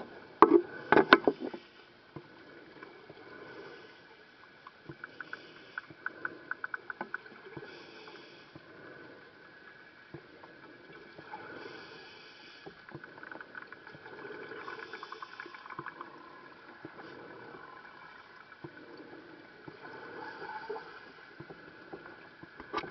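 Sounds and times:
regulator hiss on inhale: 0.6 - 22.2
bubbles crackling and gurgling: 12.8 - 22.9.

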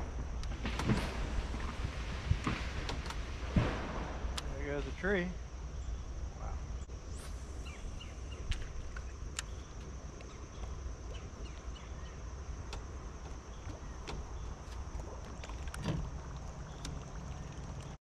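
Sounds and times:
faint high hiss: 0.0 - 14.8
boat low rumble: 0.0 - 18.0
loud thump: 0.5 - 4.4.

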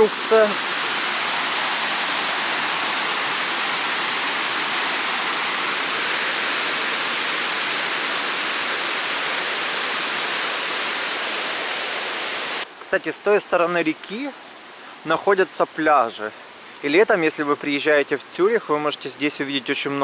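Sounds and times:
water rushing over a weir: 0.0 - 12.7.

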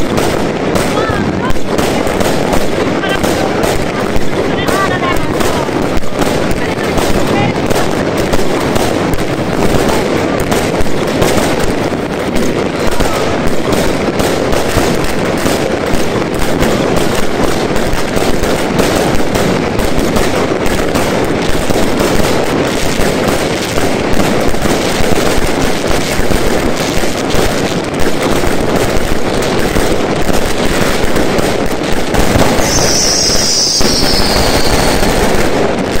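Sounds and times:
fireworks bangs and crackle: 0.0 - 36.0
high falling whistle: 32.6 - 35.1.

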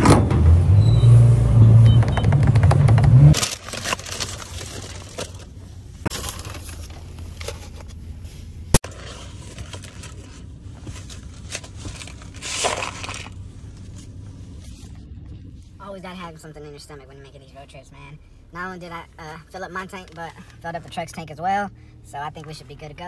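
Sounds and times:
paper packaging crinkling: 3.3 - 8.0, 8.8 - 14.0.

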